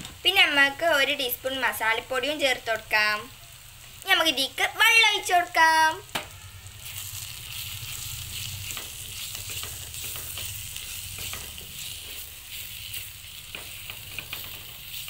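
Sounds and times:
onions sizzling in a hot pan: 0:00.0 - 0:15.0
spatula scraping a pan: 0:06.8 - 0:15.0.

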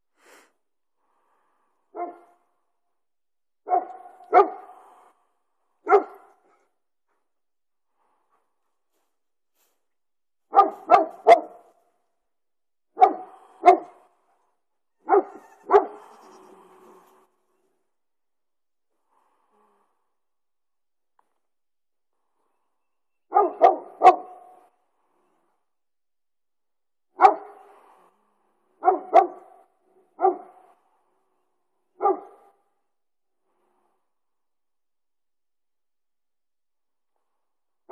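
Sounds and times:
dog barking: 0:01.9 - 0:02.4, 0:03.6 - 0:05.0, 0:05.8 - 0:06.6, 0:10.5 - 0:11.7, 0:13.0 - 0:14.1, 0:15.0 - 0:16.3, 0:23.3 - 0:24.7, 0:27.2 - 0:27.8, 0:28.8 - 0:29.6, 0:30.2 - 0:30.8, 0:32.0 - 0:32.6
short sharp animal calls: 0:15.2 - 0:16.6.

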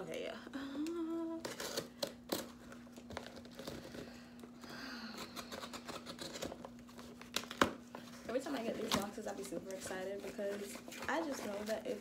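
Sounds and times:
packing tape torn from cardboard box: 0:01.4 - 0:04.2, 0:05.1 - 0:07.8
rustling and crinkling: 0:05.9 - 0:12.0.

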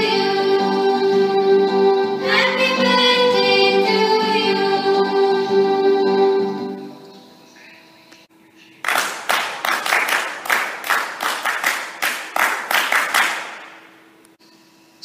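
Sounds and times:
group clapping in rhythm: 0:08.8 - 0:13.8.

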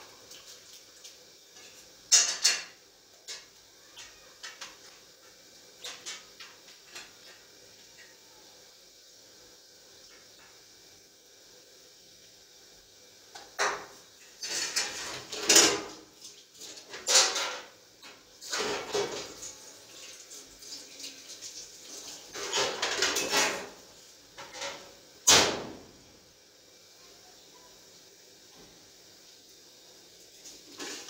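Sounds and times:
dishes clinking in a metal sink: 0:01.5 - 0:08.2, 0:13.4 - 0:19.6, 0:22.2 - 0:25.9, 0:30.7 - 0:31.0.

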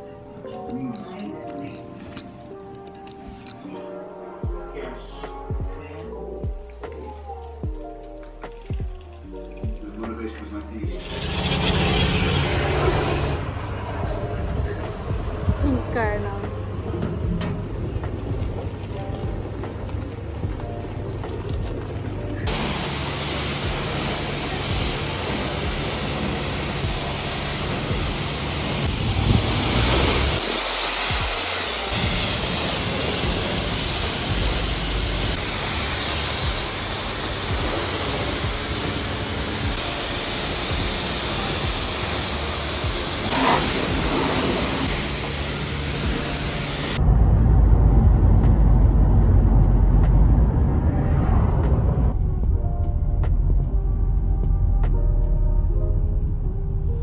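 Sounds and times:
high-pressure water jet hissing: 0:10.9 - 0:13.4, 0:22.5 - 0:47.0
car engine and road rumble: 0:41.7 - 0:57.0.

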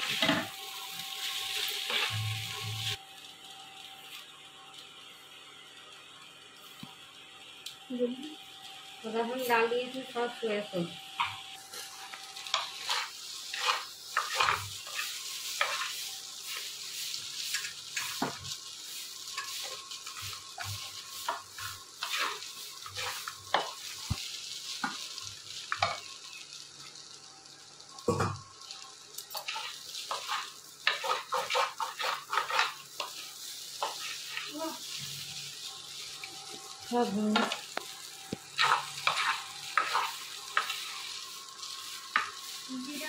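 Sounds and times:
frying sizzle: 0:00.0 - 0:43.0
spatula scraping a pan: 0:01.3 - 0:03.0, 0:11.7 - 0:24.2, 0:29.3 - 0:35.0, 0:38.5 - 0:43.0.

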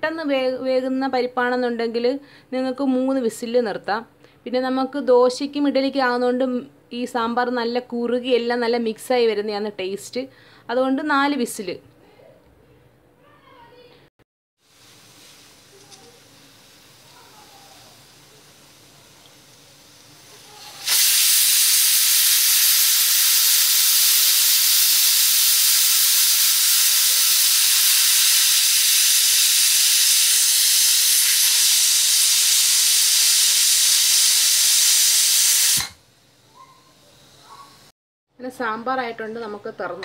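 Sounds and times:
pressure cooker whistle hissing: 0:14.8 - 0:37.7.

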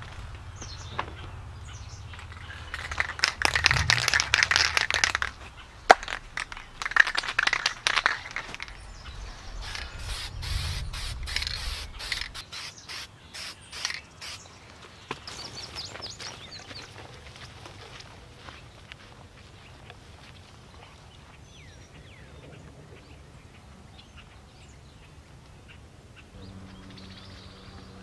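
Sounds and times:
spray can mixing ball rattling: 0:02.2 - 0:08.8, 0:09.6 - 0:14.4
spray can hissing bursts: 0:09.6 - 0:14.4.

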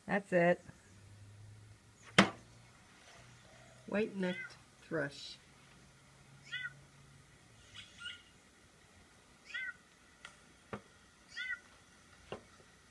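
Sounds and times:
thrush nasal calls: 0:06.4 - 0:06.8, 0:07.6 - 0:08.4, 0:09.4 - 0:09.8, 0:11.3 - 0:11.7.

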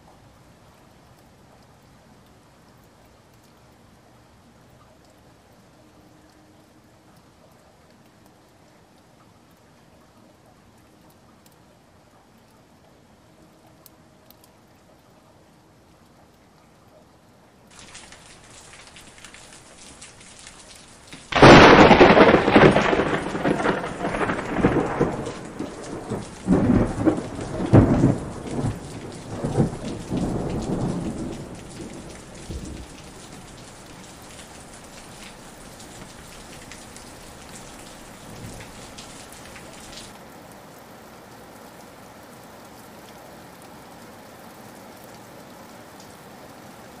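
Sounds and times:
thunder rumbling: 0:17.7 - 0:40.0
heavy rain falling: 0:17.7 - 0:47.0.

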